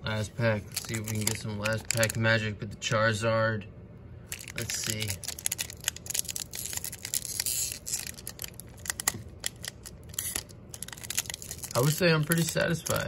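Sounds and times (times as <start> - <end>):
foil wrapper crinkling and tearing: 0.6 - 2.2, 4.3 - 13.0.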